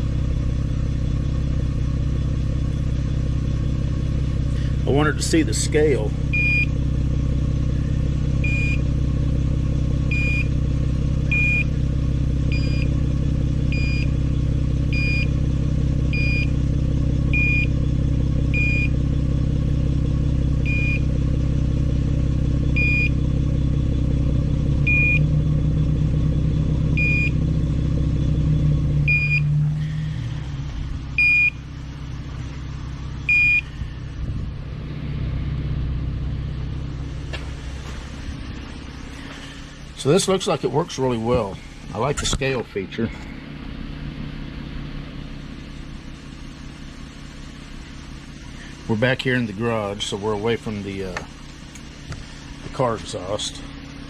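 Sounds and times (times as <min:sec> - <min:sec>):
car engine idling: 0:00.0 - 0:54.0
detector alarm beeps: 0:06.3 - 0:06.7, 0:08.4 - 0:08.9, 0:10.1 - 0:10.5, 0:11.3 - 0:11.7, 0:12.5 - 0:12.9, 0:13.7 - 0:14.1, 0:14.9 - 0:15.3, 0:16.1 - 0:16.5, 0:17.3 - 0:17.8, 0:18.5 - 0:18.9, 0:20.6 - 0:21.1, 0:22.8 - 0:23.2, 0:24.8 - 0:25.3, 0:27.0 - 0:27.4, 0:29.1 - 0:29.5, 0:31.2 - 0:31.6, 0:33.3 - 0:33.7.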